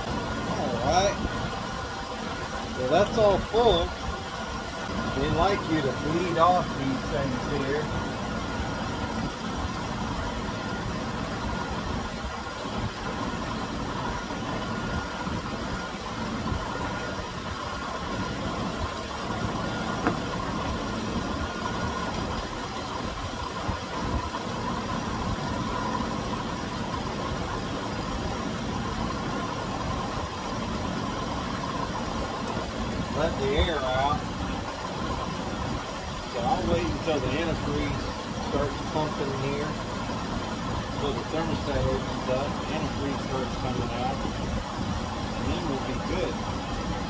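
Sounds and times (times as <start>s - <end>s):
car engine idling: 0.0s - 47.0s.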